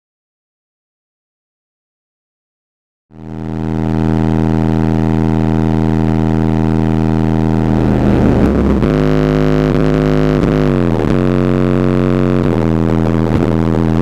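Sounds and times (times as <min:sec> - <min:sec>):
loud subwoofer bass tone: 0:03.2 - 0:14.0.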